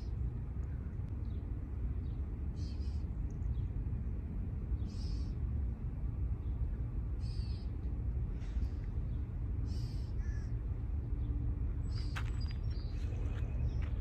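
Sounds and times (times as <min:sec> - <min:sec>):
low outdoor rumble: 0:00.0 - 0:14.0.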